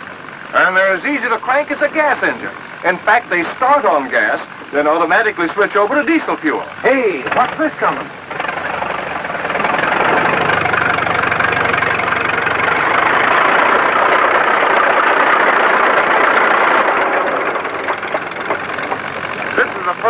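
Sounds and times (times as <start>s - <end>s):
crawler tractor engine: 0.0s - 20.0s
tractor tracks clanking: 0.0s - 20.0s.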